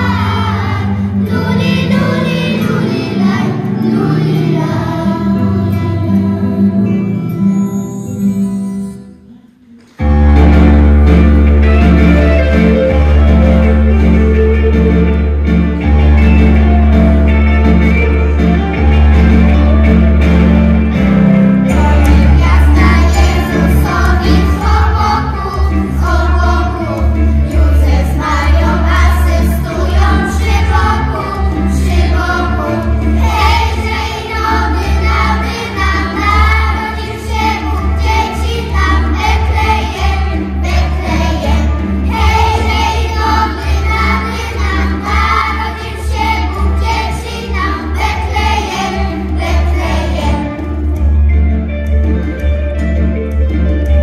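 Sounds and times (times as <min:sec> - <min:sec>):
children's choir singing a carol: 0:00.0 - 0:08.9, 0:09.5 - 0:11.5, 0:21.6 - 0:51.0
low bass accompaniment: 0:10.0 - 0:54.0.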